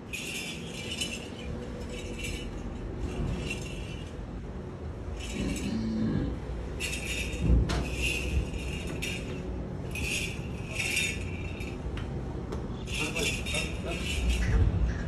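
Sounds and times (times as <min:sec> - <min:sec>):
metallic jingling and clinking: 0:00.0 - 0:12.0, 0:12.7 - 0:14.9.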